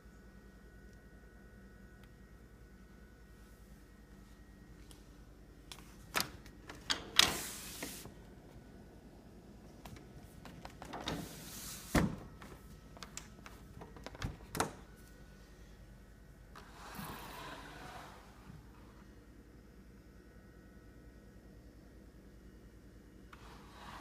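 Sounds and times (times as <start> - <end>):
window sash sliding in track: 6.9 - 8.1, 10.9 - 12.2.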